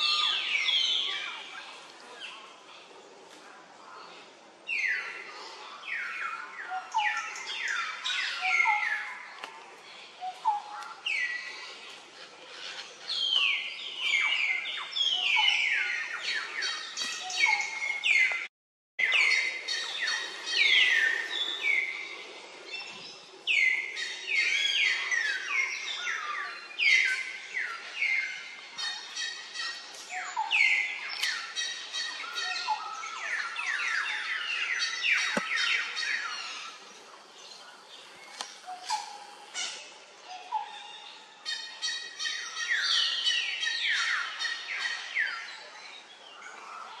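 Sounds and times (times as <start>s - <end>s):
birds chirping: 4.0s - 47.0s.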